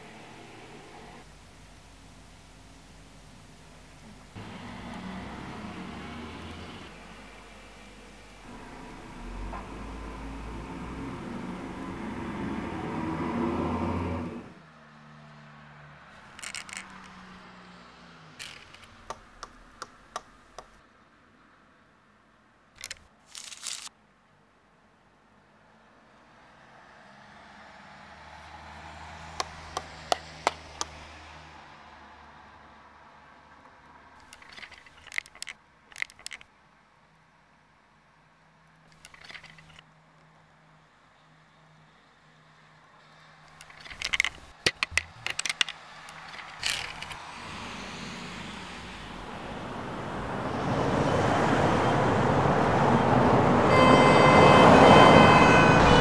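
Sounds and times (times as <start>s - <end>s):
low steady hum: 0.0s - 13.4s
sharp clicks and knocks: 18.4s - 20.8s, 29.4s - 31.0s, 34.2s - 36.5s, 43.5s - 47.2s
rushing noise: 44.8s - 56.0s.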